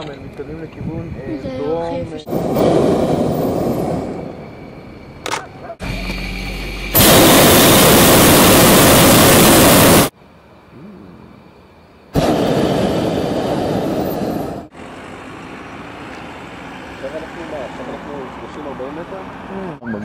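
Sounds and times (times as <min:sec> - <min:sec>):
propane burner rushing blast: 0:02.3 - 0:04.8, 0:05.8 - 0:10.2, 0:12.1 - 0:14.8.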